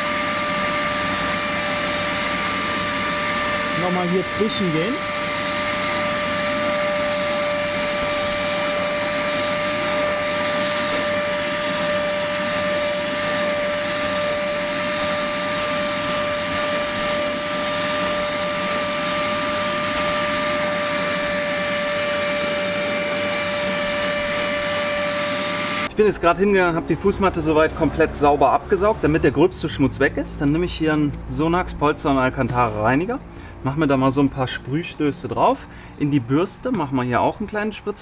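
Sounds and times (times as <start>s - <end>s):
vacuum cleaner running: 0.0s - 26.0s.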